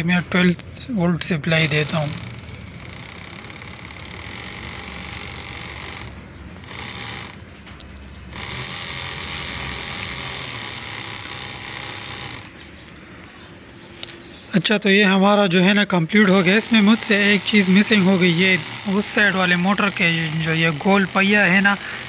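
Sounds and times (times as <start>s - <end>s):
belt sander motors running: 1.5s - 7.4s, 8.3s - 12.7s, 16.2s - 22.0s.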